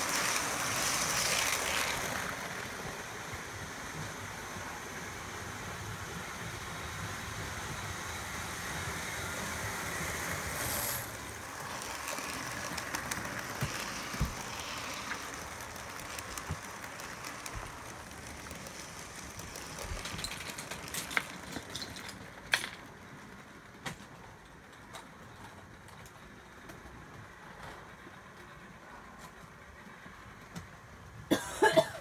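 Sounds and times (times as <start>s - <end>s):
model train motor whirring: 0.0s - 23.9s
wheels clicking over rail joints: 0.0s - 31.2s.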